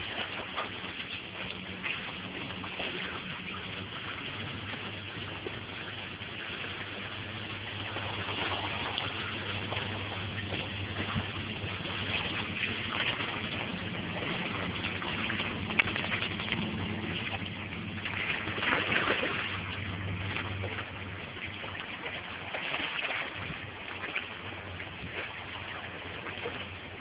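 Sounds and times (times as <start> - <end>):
creek water rushing and splashing: 0.0 - 27.0.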